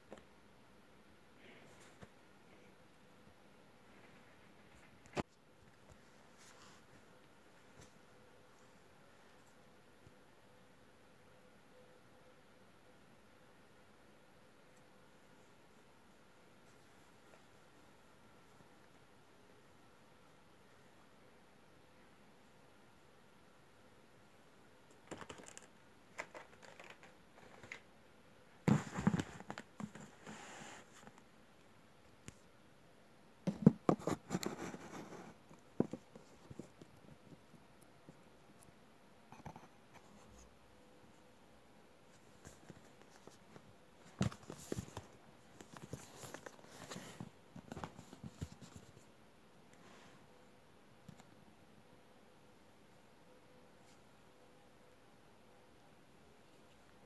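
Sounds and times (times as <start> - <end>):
card rustling against fabric: 42.1 - 49.0.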